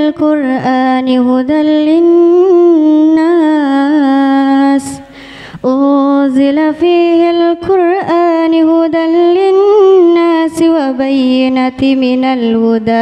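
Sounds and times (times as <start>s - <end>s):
woman reciting melodically: 0.0s - 13.0s
woman breathing in: 5.0s - 5.6s.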